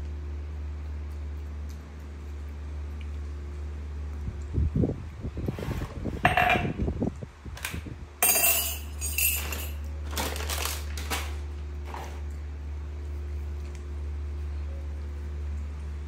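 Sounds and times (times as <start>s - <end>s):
monkey crunching and chewing: 0.0s - 4.2s
steady low hum: 0.0s - 16.0s.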